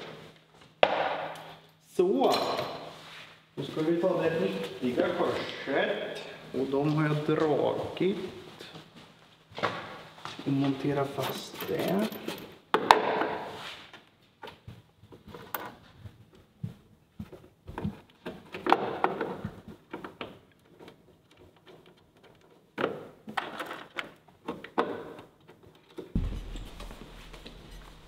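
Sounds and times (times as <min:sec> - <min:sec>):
steady low hum: 0:26.2 - 0:28.0.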